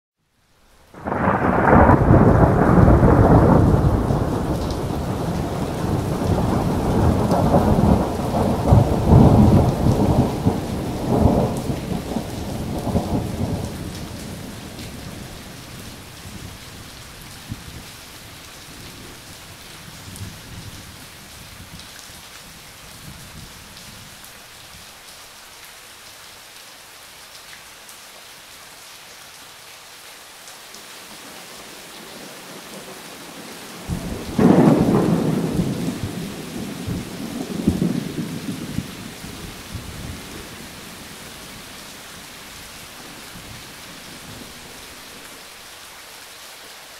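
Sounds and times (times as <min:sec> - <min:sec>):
steady rain falling: 0:00.2 - 0:46.9
thunder rumbling: 0:01.0 - 0:16.6, 0:33.8 - 0:41.2.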